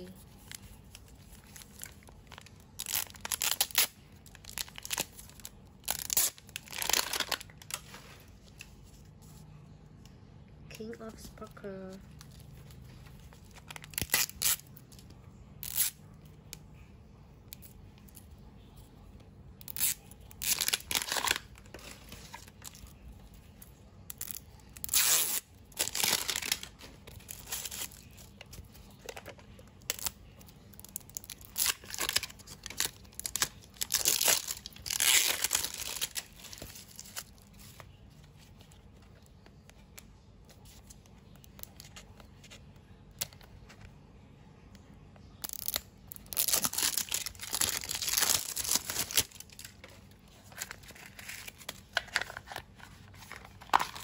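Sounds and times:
plastic packaging tearing and crinkling: 0.0 - 8.2, 12.2 - 16.1, 19.6 - 23.5, 24.1 - 38.0, 45.3 - 54.0.

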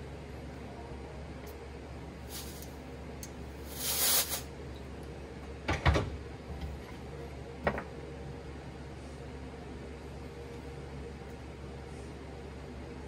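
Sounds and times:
compressed air blow gun hiss: 2.3 - 2.7, 3.6 - 4.5.

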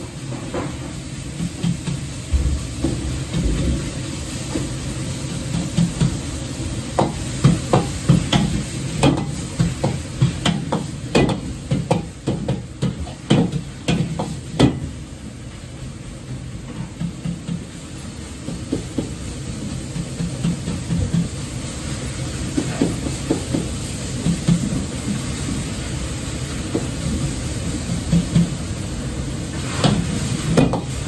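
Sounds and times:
minced meat sizzling in a wok: 0.0 - 31.0.

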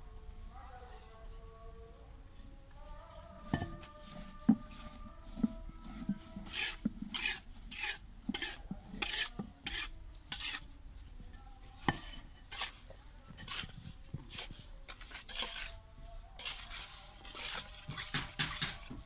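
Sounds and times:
cement disc scraping on ground: 5.3 - 10.6, 13.4 - 15.7.

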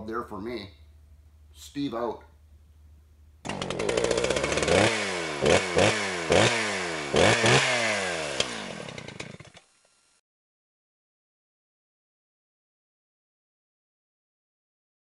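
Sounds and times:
small gasoline engine revving: 3.4 - 10.2.

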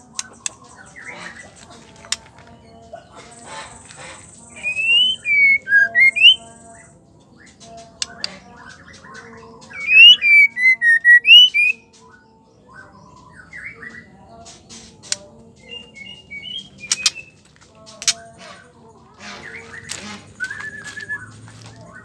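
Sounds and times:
bird whistled calls: 4.5 - 6.4, 9.7 - 11.8, 19.5 - 21.4
sharp clicks: 16.8 - 17.2, 17.9 - 18.2.

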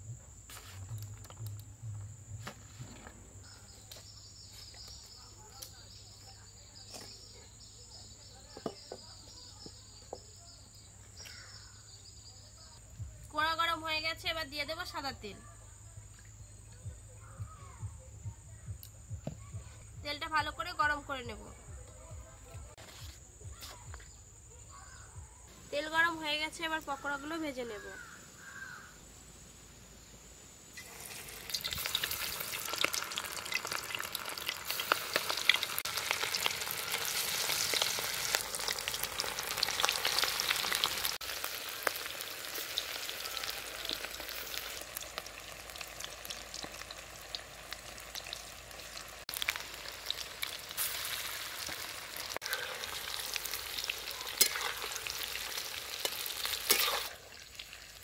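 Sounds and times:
food deep-frying in hot oil: 30.7 - 58.0.

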